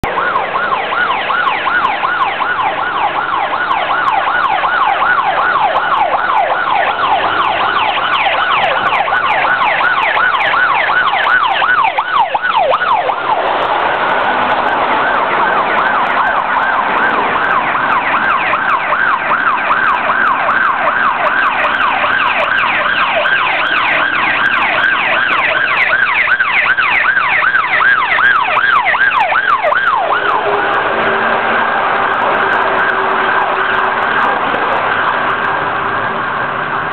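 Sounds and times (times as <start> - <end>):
fire engine sirens yelping: 0.0 - 36.9.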